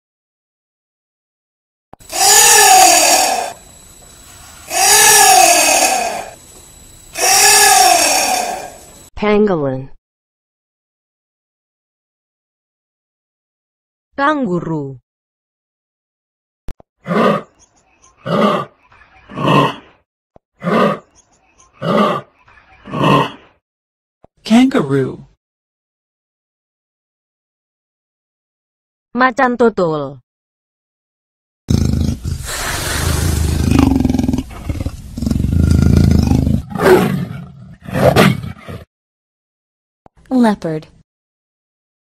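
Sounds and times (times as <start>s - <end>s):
kangaroo calls: 2.1s - 3.6s, 4.5s - 6.4s, 7.1s - 8.9s, 32.2s - 35.4s
leopard growling and roaring: 31.7s - 38.9s.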